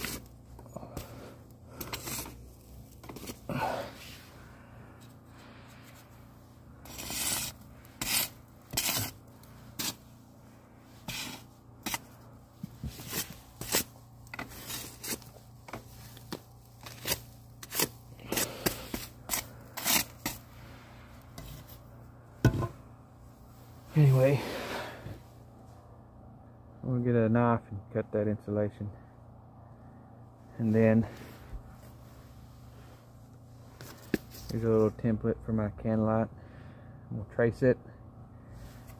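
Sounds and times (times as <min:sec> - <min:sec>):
stick scraping loose insulation: 0:00.0 - 0:03.6, 0:06.8 - 0:10.1, 0:11.0 - 0:20.5.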